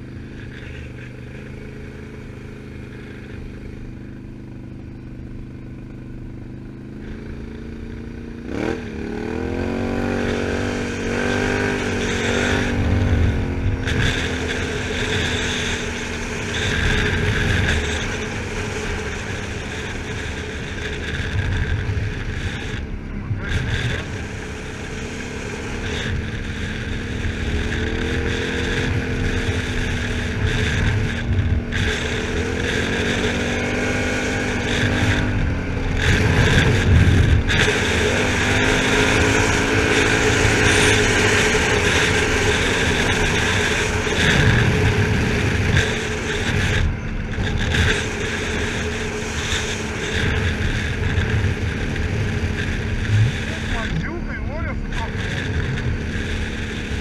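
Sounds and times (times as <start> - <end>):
atv engine revving: 0.0 - 57.0
tyres on gravel road: 0.0 - 57.0
wind noise: 26.2 - 57.0.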